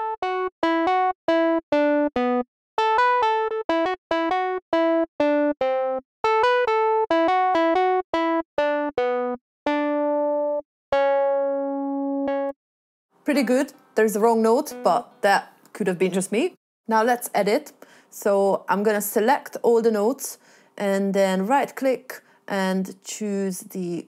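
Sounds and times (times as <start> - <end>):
synthesizer playing short notes: 14.7 - 15.3.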